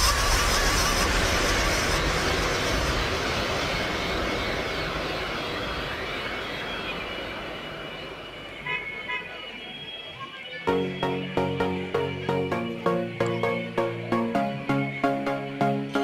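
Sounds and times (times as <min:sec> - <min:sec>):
whooshing noise sweep: 0:00.0 - 0:08.3
electronic background music: 0:10.6 - 0:16.0.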